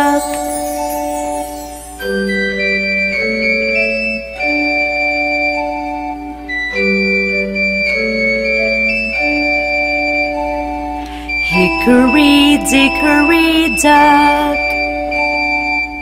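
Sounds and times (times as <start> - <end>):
electronic organ keyboard chords: 0.0 - 16.0.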